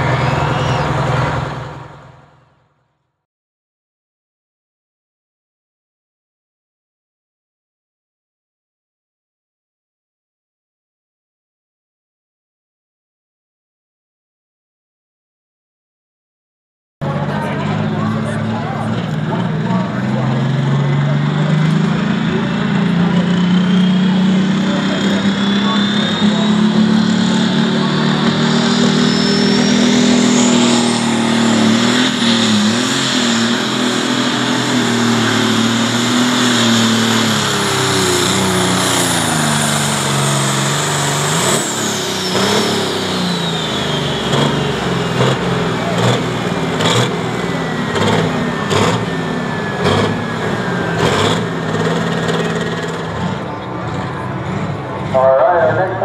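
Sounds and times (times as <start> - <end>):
turbo whistle: 0.0 - 1.2, 28.4 - 31.5
diesel tractor engine under load: 0.0 - 3.0, 17.0 - 56.0.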